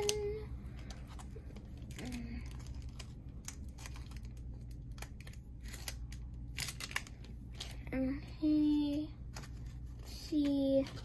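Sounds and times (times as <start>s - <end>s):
foil wrapper crinkling: 0.0s - 7.8s.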